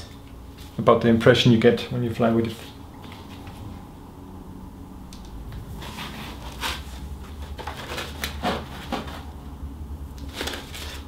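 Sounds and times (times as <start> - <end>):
steady low hum: 0.0 - 11.0
plastic rustling: 5.8 - 9.4, 10.2 - 11.0.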